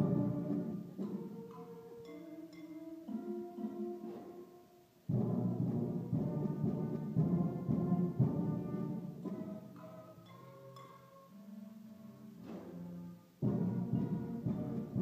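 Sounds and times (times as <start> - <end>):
school band playing: 0.0 - 15.0
drum hits: 5.1 - 9.4, 12.4 - 12.8, 13.4 - 15.0.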